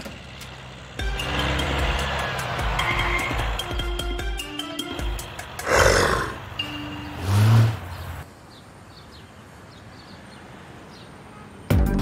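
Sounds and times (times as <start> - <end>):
background music: 1.0 - 8.0, 11.7 - 12.0
low growl: 5.6 - 6.4
animal roar sound effect: 5.6 - 6.5.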